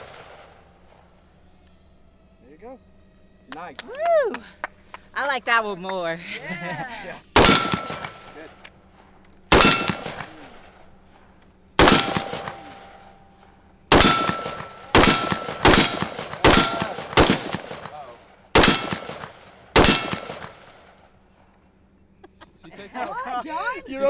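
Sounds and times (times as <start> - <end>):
rifle shots: 7.3 - 8.5, 9.5 - 11.0, 11.8 - 13.1, 13.9 - 21.1
steel targets pinging: 7.4 - 8.6, 9.5 - 10.9, 11.8 - 18.0, 18.6 - 20.6.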